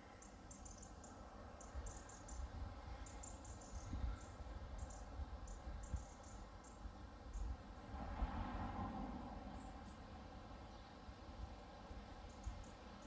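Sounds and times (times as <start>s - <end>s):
faint high-pitched chirps: 0.0s - 7.6s
wind rumble on microphone: 3.8s - 6.1s, 7.3s - 10.4s.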